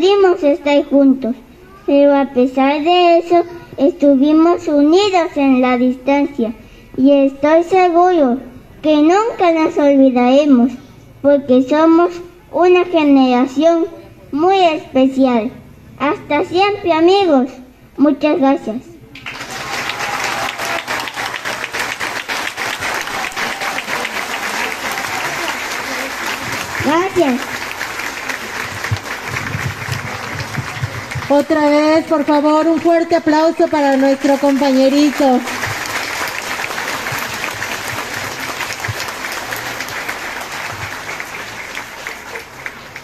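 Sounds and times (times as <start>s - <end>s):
audience applauding: 19.2s - 32.1s, 33.6s - 43.0s.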